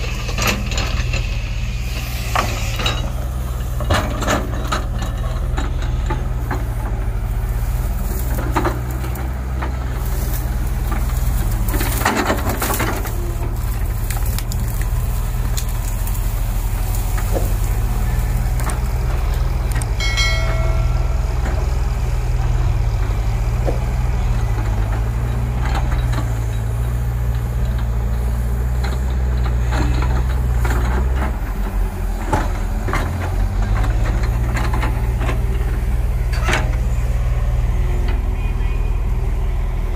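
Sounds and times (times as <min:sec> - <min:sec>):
excavator diesel engine running: 0:00.0 - 0:39.9
branches cracking and snapping: 0:05.5 - 0:20.0.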